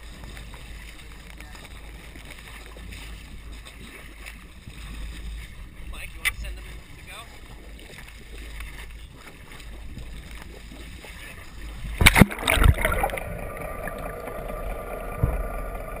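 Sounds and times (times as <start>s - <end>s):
boat engine rumble: 0.0s - 16.0s
wind: 0.0s - 16.0s
loud water splashing: 9.2s - 16.0s
bubbles rushing underwater: 9.9s - 16.0s.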